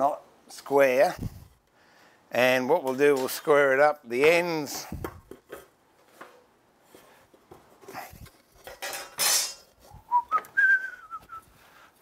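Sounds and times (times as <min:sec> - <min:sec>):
man whistling: 0:09.9 - 0:11.5.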